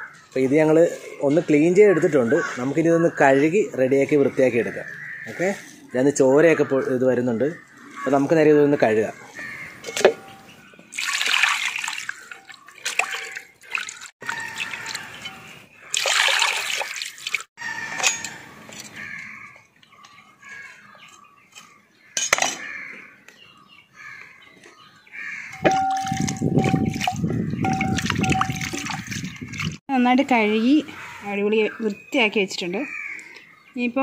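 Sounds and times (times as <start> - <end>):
running water: 10.9 - 17.5, 25.7 - 29.8
water splashing in metal basin: 10.9 - 17.5, 25.5 - 29.8.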